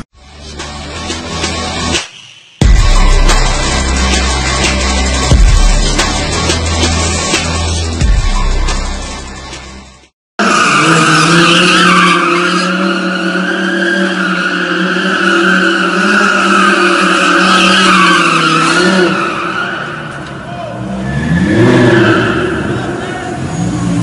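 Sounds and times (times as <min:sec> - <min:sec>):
music: 0:00.2 - 0:10.1
tyres skidding: 0:10.4 - 0:24.0.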